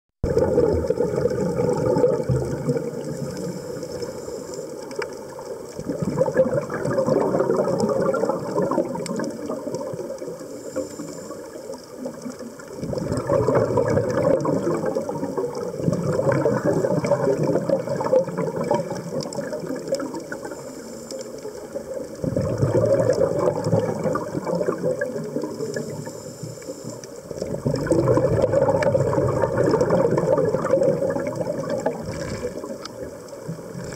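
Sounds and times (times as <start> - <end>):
underwater diver's bubbles: 0.2 - 33.9.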